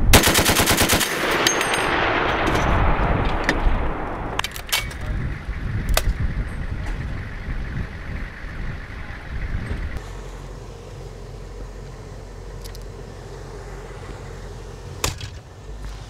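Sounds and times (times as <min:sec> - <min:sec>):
heavy machine gun burst: 0:00.1 - 0:04.0
low rumble: 0:01.3 - 0:16.0.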